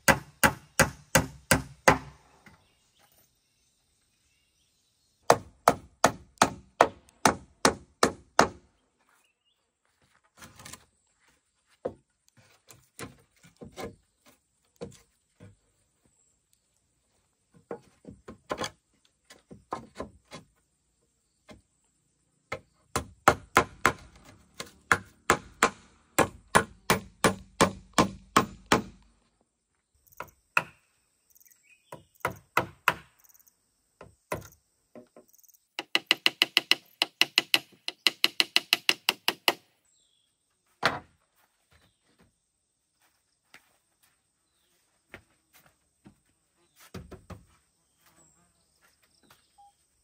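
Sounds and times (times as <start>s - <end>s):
hammer driving nails into wood: 0.0s - 2.2s, 5.3s - 8.6s, 22.5s - 29.0s, 35.8s - 39.7s.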